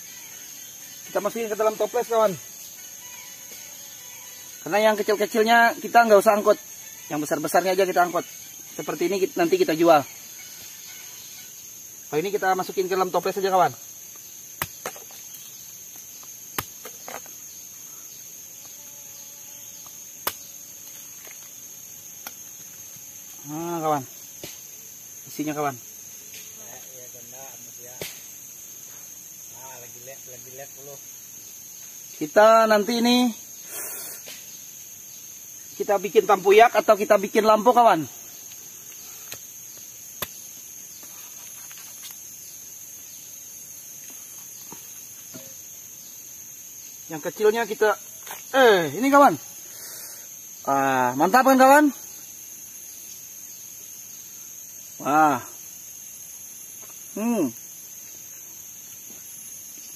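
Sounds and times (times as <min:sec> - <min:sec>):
insect drone: 0:00.0 - 0:59.9
machete knocking on fruit husk: 0:14.6 - 0:15.2, 0:16.5 - 0:17.3, 0:20.2 - 0:20.5, 0:28.0 - 0:28.3, 0:40.2 - 0:40.4
machete knocking on husk: 0:14.6 - 0:15.2.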